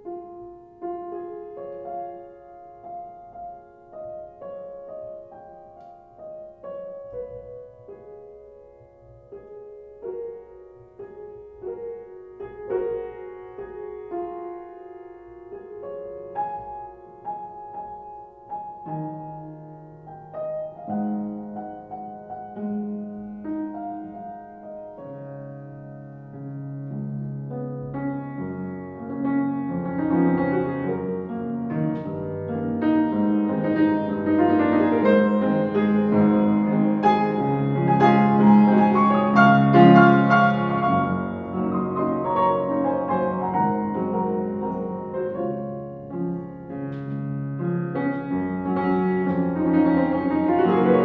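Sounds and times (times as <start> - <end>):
soft piano music: 0.0 - 51.0.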